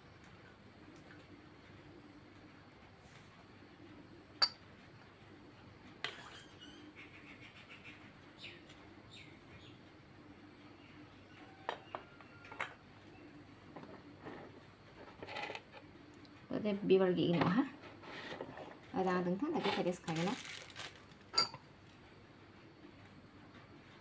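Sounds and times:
faint steady hum: 0.0 - 24.0.

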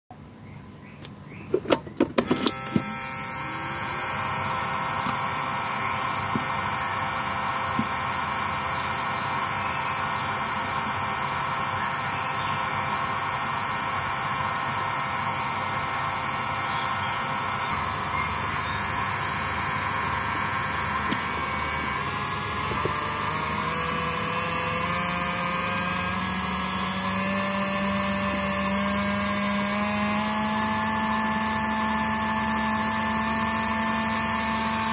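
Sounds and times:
small motor with gear whine: 1.7 - 34.9
sharp clicks: 4.9 - 5.4.

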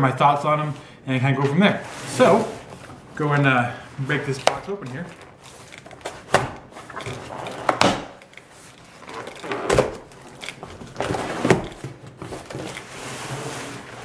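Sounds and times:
cardboard and paper tearing: 1.8 - 2.7.

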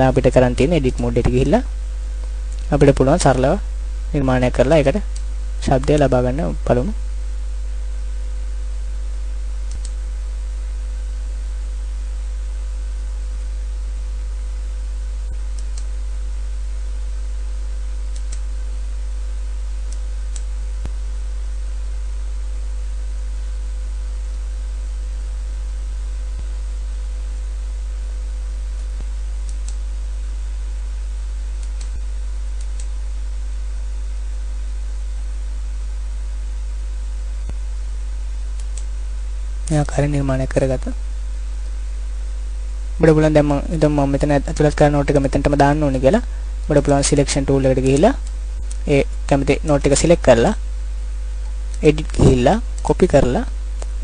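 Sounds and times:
electrical mains hum: 0.0 - 54.0
computer mouse clicks: 9.7 - 10.0, 18.1 - 18.4, 38.6 - 38.9.

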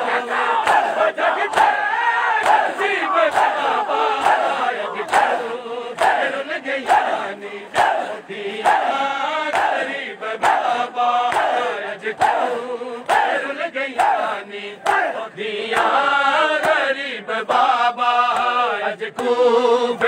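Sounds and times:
men chanting in unison: 0.0 - 20.0
hands slapping chests: 0.6 - 1.8, 2.4 - 3.6, 4.2 - 5.4, 11.3 - 12.5.

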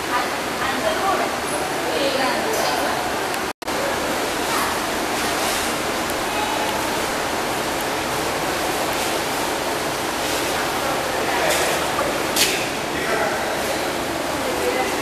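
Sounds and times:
aquarium water bubbling: 3.7 - 15.0.

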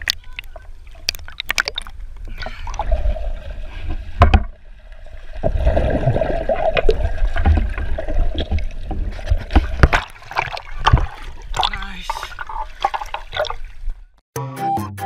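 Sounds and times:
underwater bubbles blowing: 0.0 - 13.7
water sloshing: 0.0 - 14.2
splash: 5.2 - 14.0.

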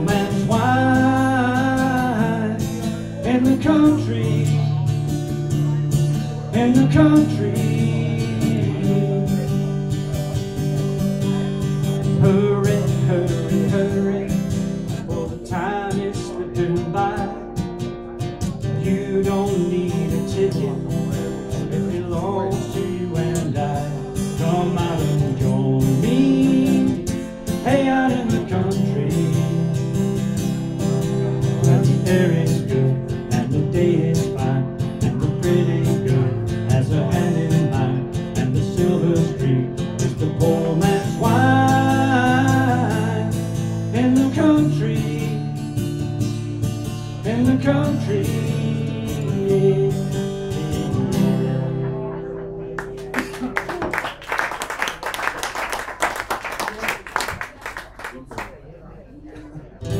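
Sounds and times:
acoustic guitar strumming: 0.0 - 54.0.

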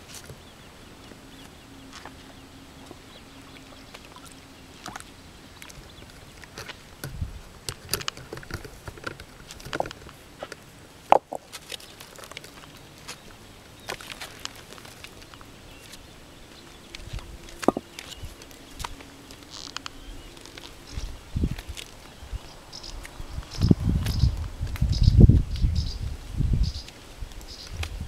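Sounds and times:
footsteps on loose rocks: 5.9 - 25.4.

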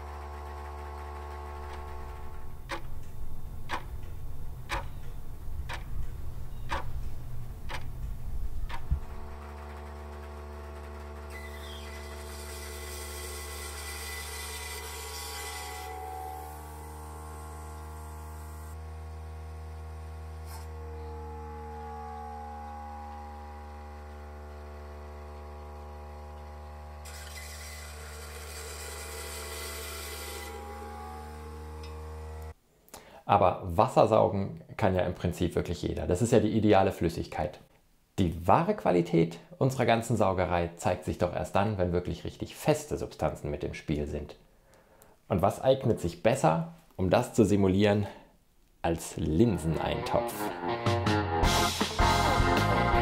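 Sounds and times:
steady hum: 0.0 - 10.8.

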